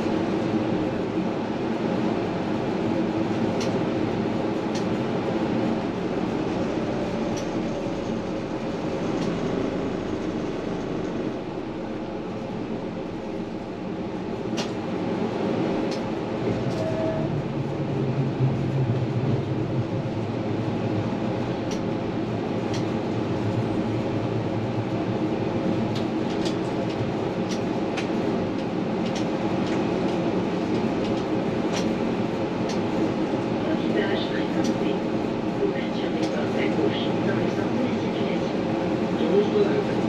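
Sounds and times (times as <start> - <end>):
tram rolling on rails: 0.0 - 40.0
low hum: 5.5 - 25.9.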